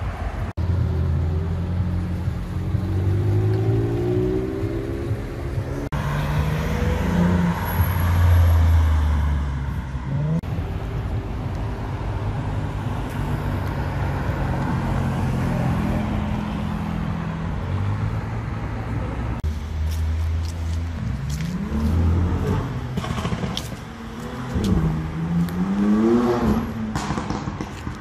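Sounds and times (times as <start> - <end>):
traffic noise: 0.0 - 28.0
sports car engine passing: 0.6 - 10.6, 20.0 - 28.0.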